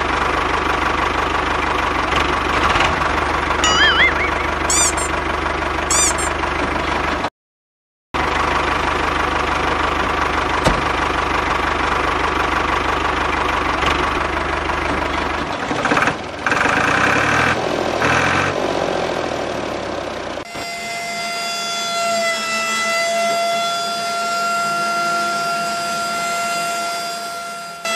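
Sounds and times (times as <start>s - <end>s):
tractor engine idling: 0.0s - 7.3s, 8.2s - 16.9s
held tones of a tune: 3.6s - 5.2s, 5.9s - 6.4s.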